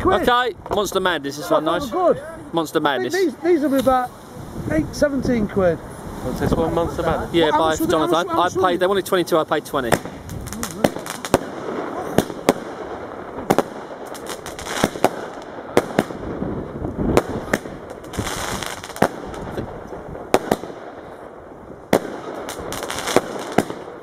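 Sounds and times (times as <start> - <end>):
firework hissing: 9.7 - 24.0
firework sharp bangs: 9.8 - 24.0.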